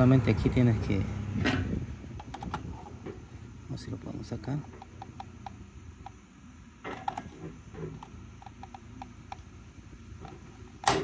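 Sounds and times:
plastic parts clicking and creaking: 2.2s - 3.2s, 6.8s - 9.4s.

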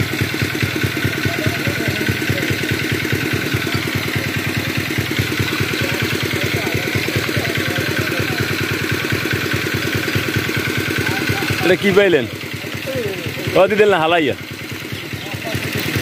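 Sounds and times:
water pump engine chugging: 0.0s - 16.0s.

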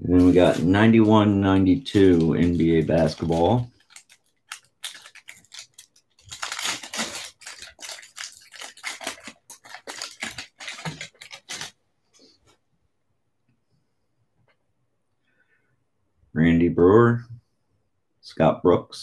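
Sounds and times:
foil wrapper tearing and crinkling: 0.2s - 11.8s.

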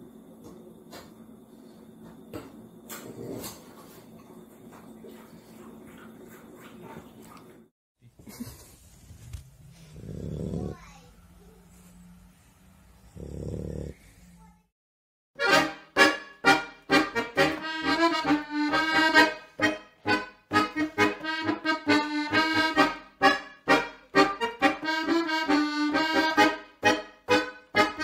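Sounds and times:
lively bouncy background music: 15.4s - 28.0s.

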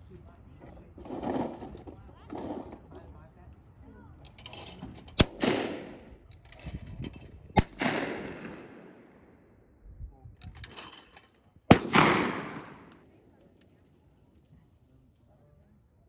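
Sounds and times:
shotgun shots: 5.2s - 6.2s, 7.6s - 9.3s, 11.7s - 13.0s.

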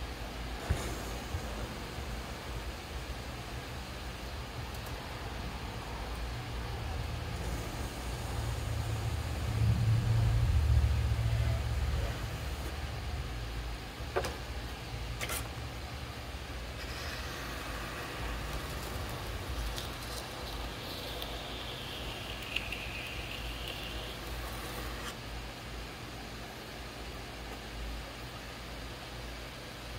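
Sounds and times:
potter's wheel motor hum: 6.2s - 13.6s, 14.5s - 25.2s.

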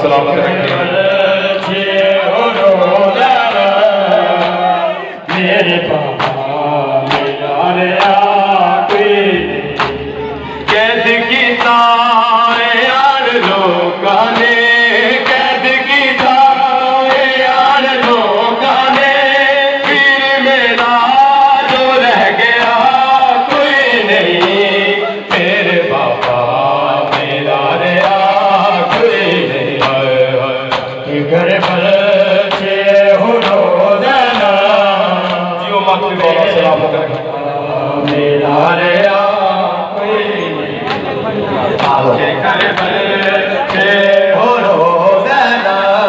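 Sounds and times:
men chanting: 0.0s - 46.0s
chest-beating slaps: 9.7s - 10.0s.

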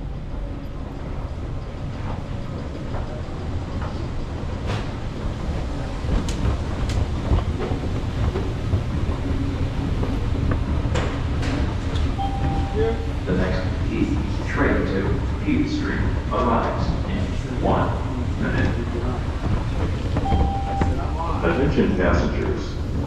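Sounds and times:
subway train rumble: 0.0s - 23.0s.

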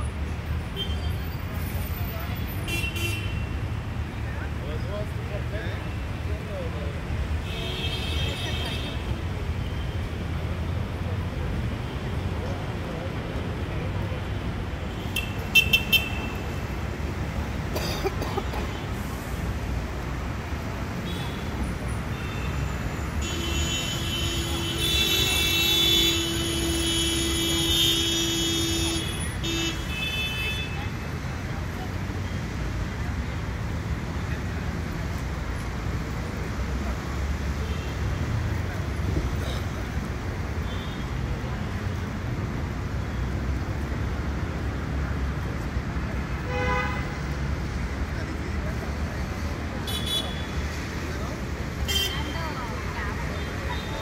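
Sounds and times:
city street traffic: 0.0s - 54.0s
vehicle horn honking: 46.5s - 47.2s.

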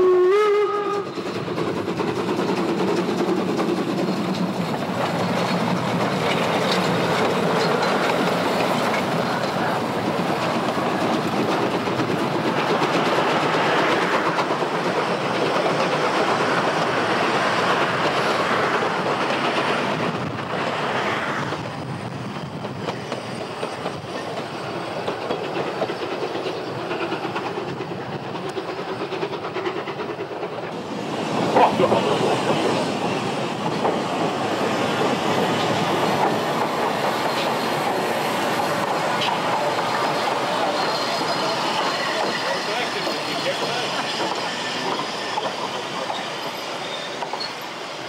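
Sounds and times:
steam train wheels clattering: 0.0s - 48.0s
sharp clank or squeal: 39.2s - 47.8s.

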